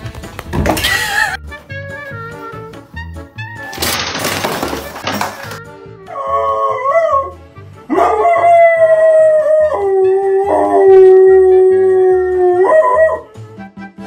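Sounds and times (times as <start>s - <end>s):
dog howling: 6.1s - 13.3s.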